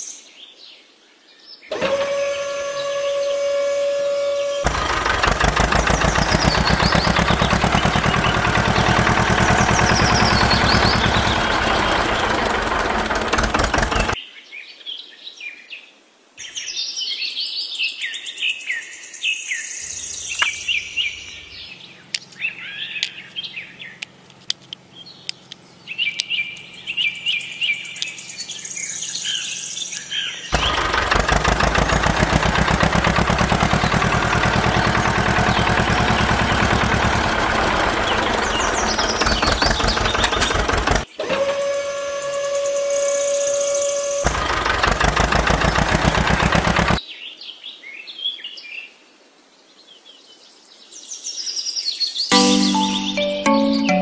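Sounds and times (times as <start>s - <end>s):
small engine running: 1.7s - 14.2s, 19.9s - 47.0s
birds chirping: 2.3s - 14.2s, 19.8s - 41.2s, 42.6s - 47.0s
sharp clicks: 22.1s - 27.3s.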